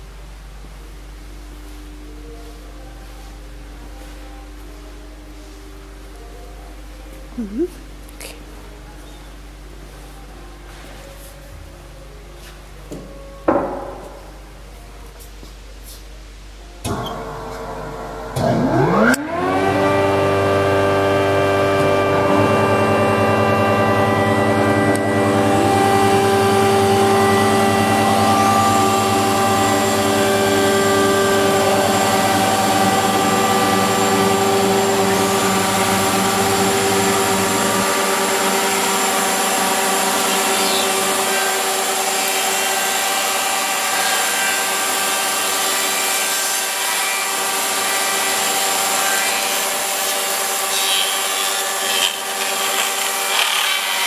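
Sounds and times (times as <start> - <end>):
low hum: 14.2 - 42.4
planer motors whining: 16.9 - 54.0.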